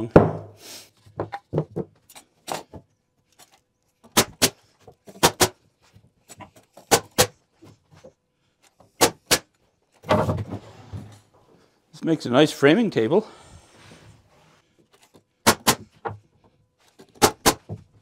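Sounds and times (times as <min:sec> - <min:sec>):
nail gun firing: 0:04.1 - 0:04.6, 0:09.0 - 0:09.5, 0:15.4 - 0:15.9, 0:17.2 - 0:17.7.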